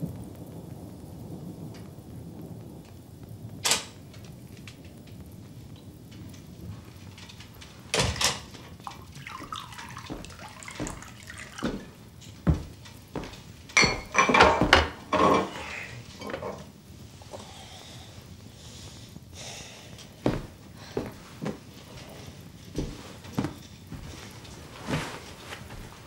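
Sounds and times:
wine pouring into a glass: 8.8s - 12.7s
glass knocks and clinks: 13.8s - 15.5s.

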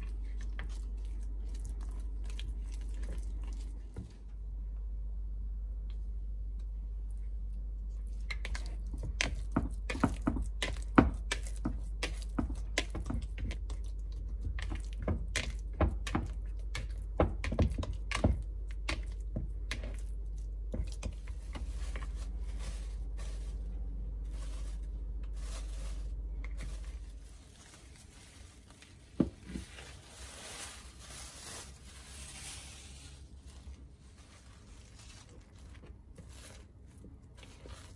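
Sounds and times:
hands kneading sticky dough: 0.0s - 4.6s, 5.8s - 37.9s
steady low hum: 0.0s - 37.9s
soft rustle: 21.2s - 37.9s.

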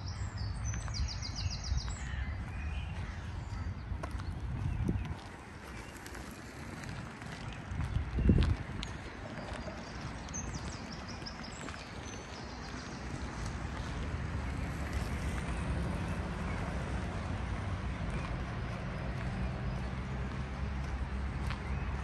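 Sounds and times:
low traffic rumble: 0.0s - 22.0s.

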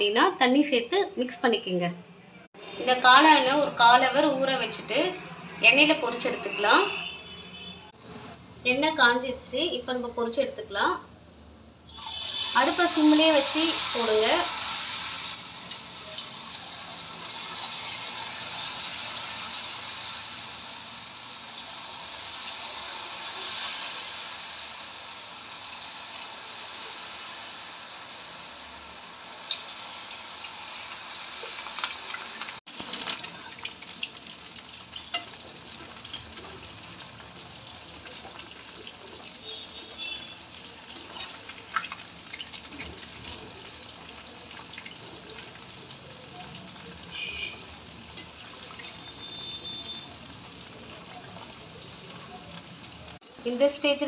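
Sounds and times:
food deep-frying in hot oil: 11.8s - 54.0s.

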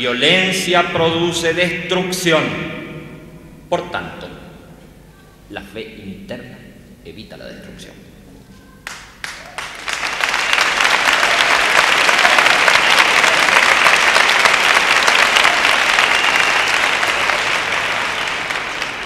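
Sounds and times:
large crowd applauding: 8.8s - 19.0s.

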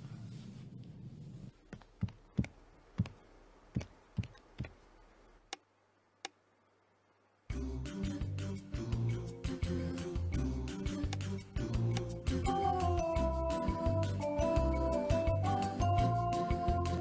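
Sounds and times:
faint low hum: 0.0s - 12.5s
footsteps on hard floor: 1.7s - 3.2s, 3.8s - 4.8s.

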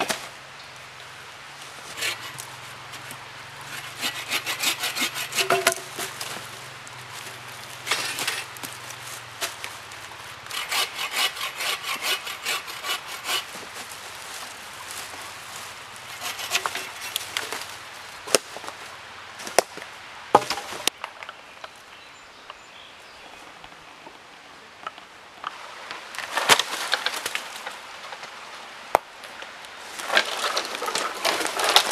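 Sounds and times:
sticks and dry leaves crunching: 1.5s - 21.0s, 25.9s - 28.4s, 29.8s - 31.9s
hand saw cutting wood: 1.9s - 6.5s, 7.9s - 8.6s, 10.5s - 13.7s, 16.1s - 17.6s.

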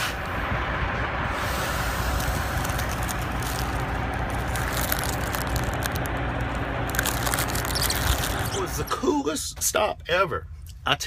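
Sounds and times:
vehicle engine rumble: 0.0s - 11.0s
faint clicks and crackles: 2.2s - 8.5s.

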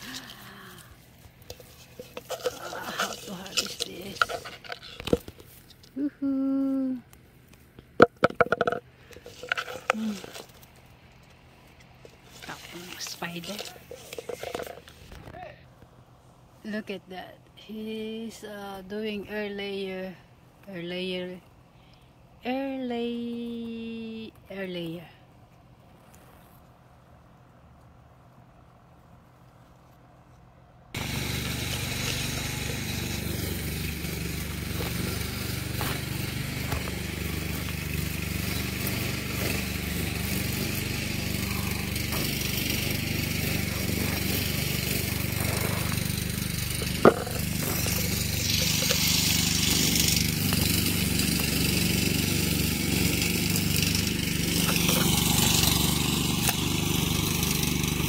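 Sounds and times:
small engine running: 0.0s - 5.6s, 8.0s - 10.8s, 12.1s - 15.2s, 31.0s - 58.0s.

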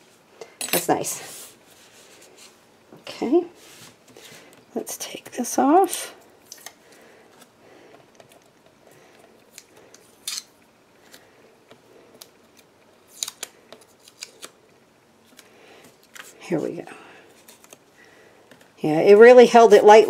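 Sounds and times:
tape ripping off: 13.1s - 14.6s.

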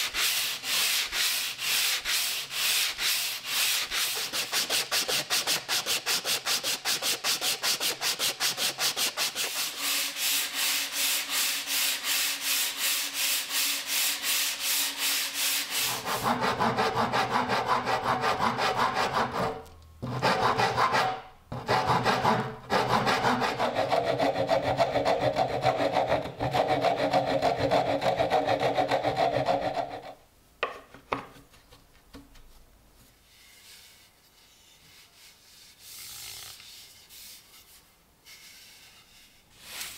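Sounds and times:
sandpaper rubbing on wood: 0.0s - 19.4s.

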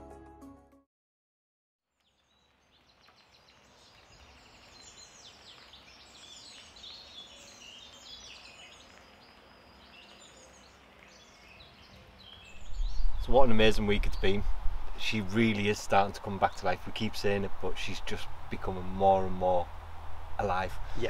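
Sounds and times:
music: 0.0s - 0.9s
faint outdoor background: 1.8s - 21.0s
birds chirping: 2.0s - 21.0s.

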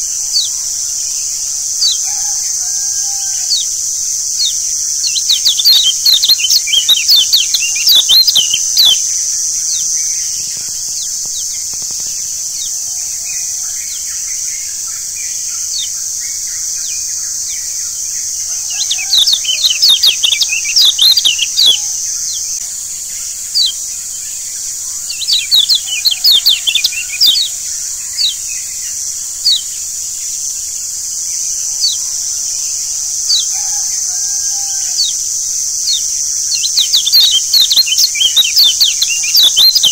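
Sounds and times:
high-pitched hiss: 0.0s - 39.9s
bird chirping high and sharp: 4.4s - 9.0s, 18.6s - 22.4s, 25.1s - 27.5s, 35.9s - 39.9s.

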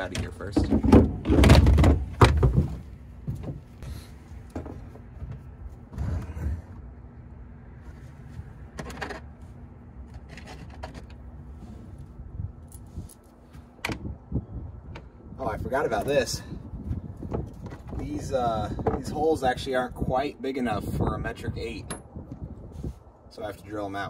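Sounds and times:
scuffs and knocks: 0.2s - 6.6s.

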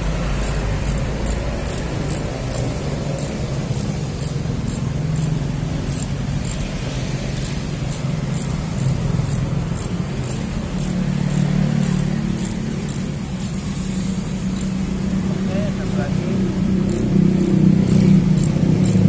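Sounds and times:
ratchet wrench clicking: 0.1s - 13.8s, 14.5s - 14.8s, 16.8s - 19.0s.

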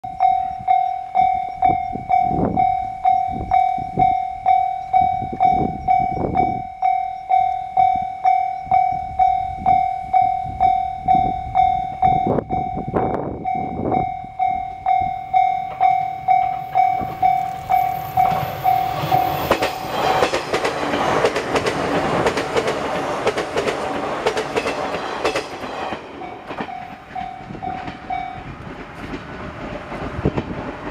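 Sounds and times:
level crossing bell ringing: 0.0s - 19.4s
train wheels rushing on rail: 0.4s - 30.9s.

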